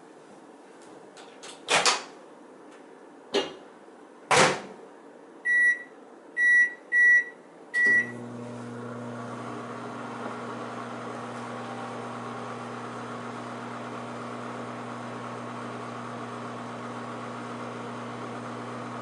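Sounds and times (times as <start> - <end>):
short keypad beeps: 5.5 - 8.1
microwave oven humming: 5.5 - 19.0.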